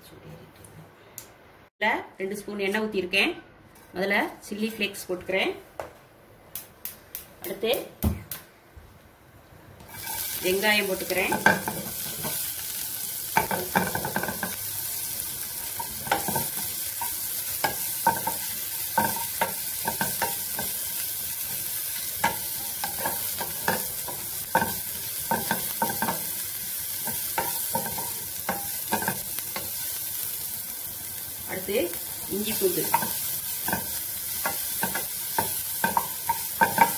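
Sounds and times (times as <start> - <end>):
onions sizzling in hot oil: 9.8 - 36.9.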